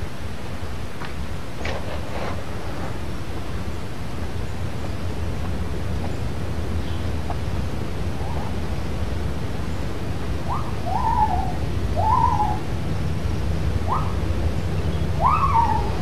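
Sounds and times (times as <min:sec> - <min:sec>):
low background rumble: 0:02.4 - 0:16.0
animal hooting calls: 0:10.4 - 0:12.6, 0:13.8 - 0:14.3, 0:15.1 - 0:16.0.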